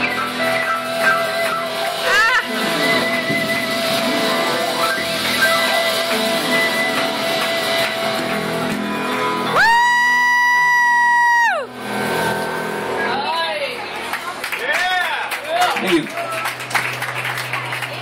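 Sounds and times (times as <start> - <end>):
live rock band playing: 0.0 - 14.1
person whooping: 9.5 - 11.7.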